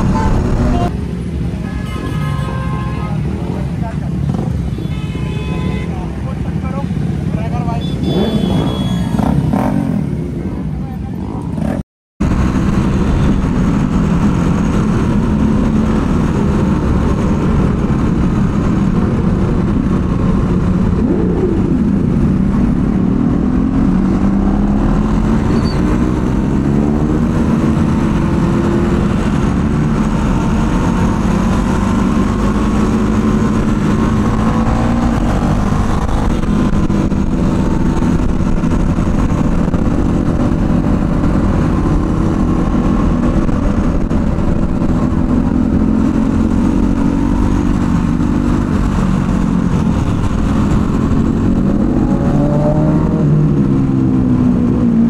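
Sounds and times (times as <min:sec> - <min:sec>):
wind rumble: 0:00.0 - 0:01.0, 0:12.2 - 0:55.0
motorcycle engine revving: 0:08.0 - 0:10.3, 0:11.5 - 0:55.0.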